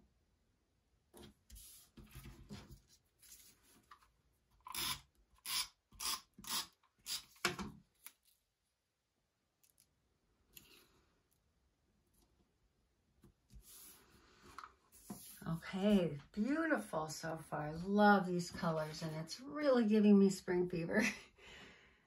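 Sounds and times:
paper rustling: 0:01.5 - 0:04.1
paper scraping strokes: 0:13.5 - 0:15.7.

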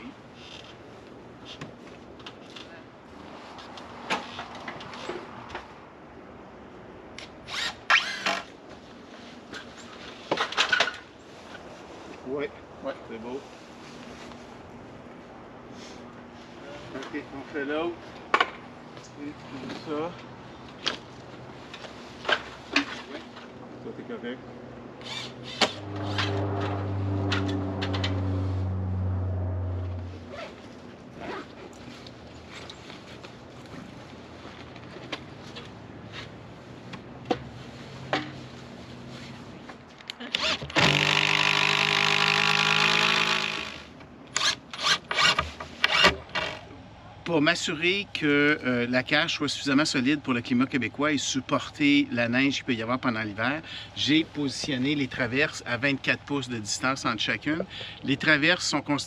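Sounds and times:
power drill driving screws: 0:07.5 - 0:08.5, 0:25.0 - 0:25.8, 0:40.4 - 0:46.2.

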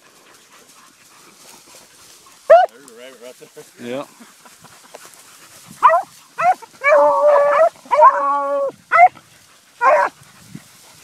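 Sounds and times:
dogs baying and barking: 0:00.0 - 0:11.0.

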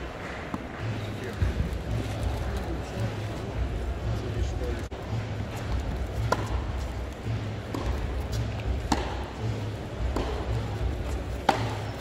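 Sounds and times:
low arena hum: 0:00.0 - 0:12.0
tennis ball pops: 0:07.7 - 0:09.3, 0:10.0 - 0:10.6, 0:11.4 - 0:12.0.

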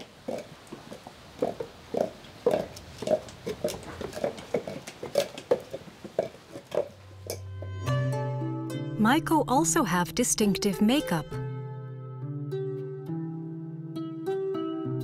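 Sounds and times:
wooden clogs on stone paving: 0:00.0 - 0:07.7.

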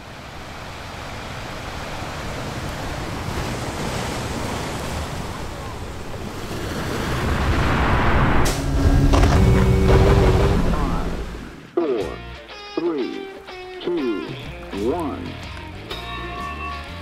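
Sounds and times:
wind rushing over microphone: 0:04.2 - 0:11.6.

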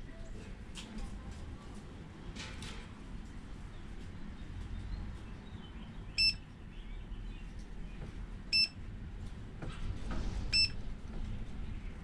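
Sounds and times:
short high electronic beeps: 0:06.2 - 0:06.4, 0:08.6 - 0:08.8, 0:10.6 - 0:10.8.

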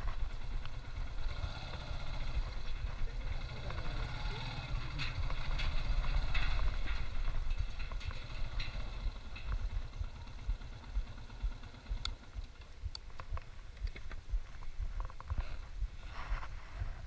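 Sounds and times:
motorcycle engine rumble: 0:00.0 - 0:17.0
sharp clicks: 0:03.7 - 0:14.3.

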